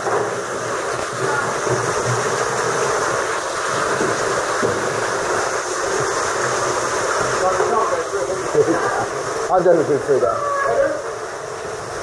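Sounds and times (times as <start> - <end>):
waterfall pouring into sea: 0.0 - 12.0.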